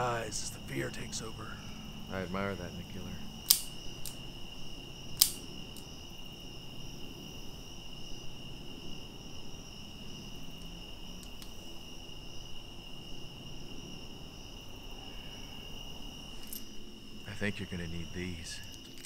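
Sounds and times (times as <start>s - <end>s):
crickets trilling: 0.0s - 19.0s
faint clicks: 10.6s - 11.6s.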